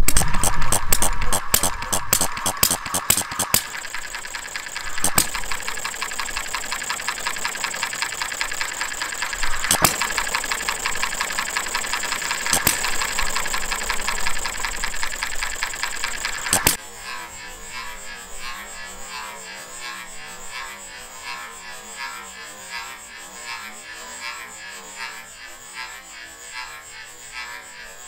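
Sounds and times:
engine mechanical clatter: 0.0s - 16.8s
engine firing strokes: 0.0s - 21.7s.

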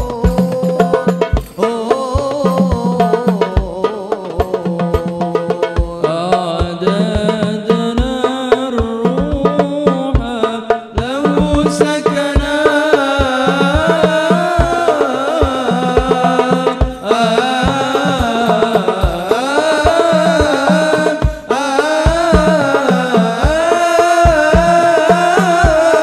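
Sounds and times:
frame drums beating: 0.0s - 26.0s
men singing devotional melody: 0.0s - 26.0s.

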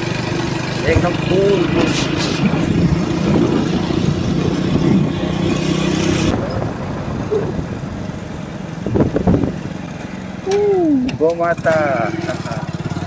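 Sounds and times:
motorcycle engine cruising: 0.0s - 13.0s.

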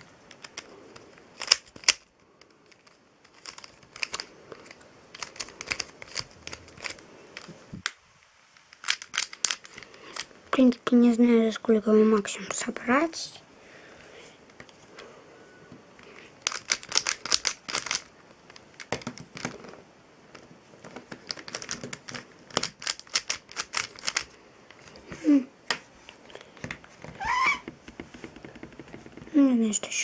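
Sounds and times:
speed cube turning clicks: 0.3s - 8.0s, 8.7s - 10.3s, 16.4s - 19.6s, 21.1s - 24.4s.

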